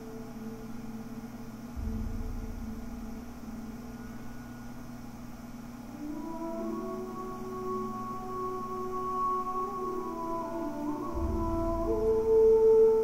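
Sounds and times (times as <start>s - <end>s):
ambient droning music: 0.0s - 13.0s
computer fan hiss: 0.0s - 13.0s
deep bass note: 1.7s - 5.1s.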